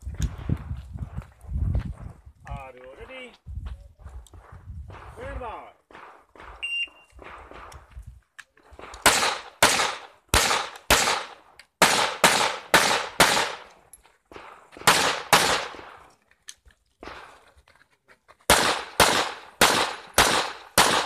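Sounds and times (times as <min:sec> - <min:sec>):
pistol shots with echo: 0:04.9 - 0:08.0, 0:08.7 - 0:16.0, 0:18.5 - 0:21.0.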